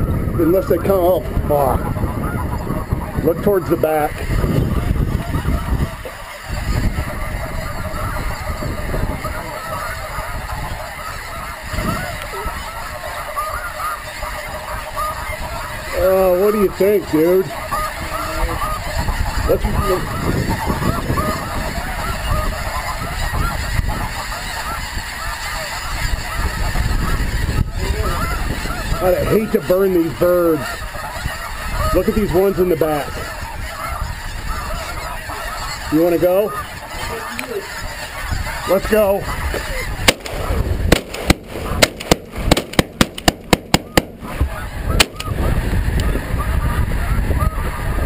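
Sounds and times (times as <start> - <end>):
geese honking: 0.0 - 48.0
shotgun shots: 40.0 - 44.3, 45.0 - 45.2.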